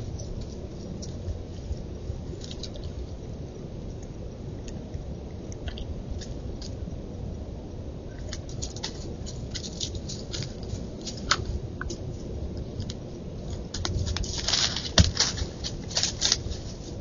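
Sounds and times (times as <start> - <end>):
steady background hiss: 0.0 - 17.0
crunching on dry leaves: 8.2 - 17.0.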